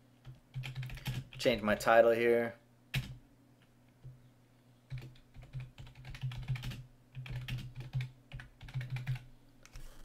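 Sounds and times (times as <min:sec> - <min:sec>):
computer keyboard typing: 0:00.2 - 0:01.5, 0:02.9 - 0:03.2, 0:04.9 - 0:09.3.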